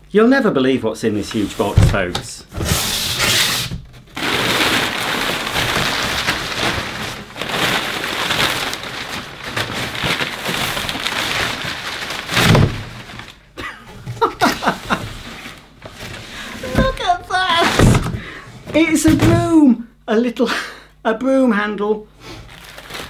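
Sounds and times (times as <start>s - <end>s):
packing paper crackling: 2.9s - 13.5s, 14.2s - 18.2s, 22.4s - 23.0s.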